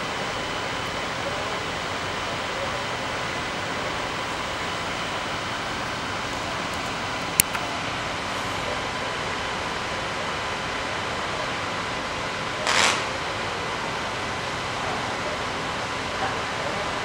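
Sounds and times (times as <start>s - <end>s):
fire hose jets spraying water: 0.0s - 17.0s
short burst of hiss: 12.6s - 13.2s.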